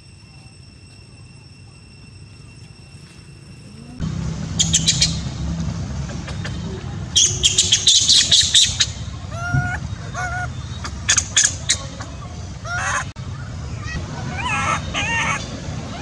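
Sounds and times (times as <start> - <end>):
steady low hum: 0.0 - 16.0
high squawking animal calls: 3.8 - 16.0.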